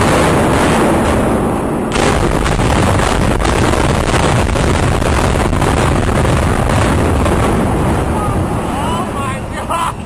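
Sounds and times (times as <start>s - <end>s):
building collapsing rumble: 0.0s - 10.0s.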